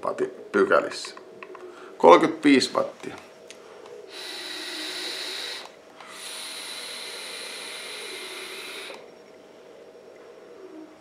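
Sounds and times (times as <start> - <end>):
vape atomiser hiss: 4.1 - 9.1.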